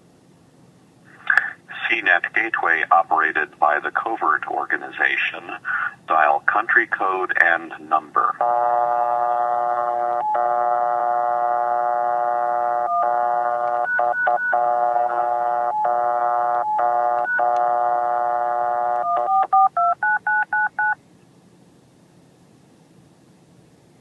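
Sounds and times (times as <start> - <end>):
telephone dial tone: 8.4 - 21.0
touch-tone dialling digits: 12.7 - 21.0
keypad beeps: 12.8 - 17.9, 18.9 - 21.0.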